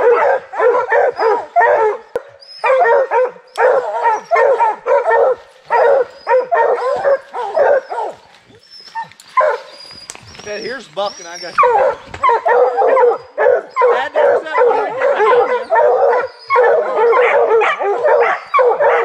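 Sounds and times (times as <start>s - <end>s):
hounds barking: 0.0s - 19.0s.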